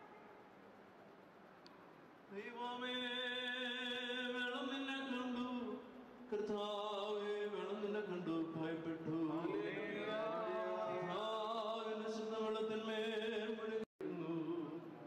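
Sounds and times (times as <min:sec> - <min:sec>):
priest chanting: 0:08.7 - 0:12.3.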